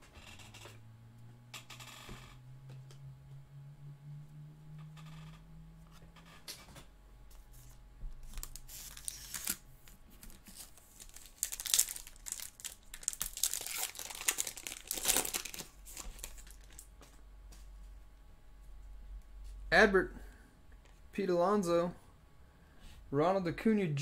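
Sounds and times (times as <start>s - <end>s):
foil wrapper tearing and crinkling: 8.2s - 9.6s, 10.2s - 16.9s.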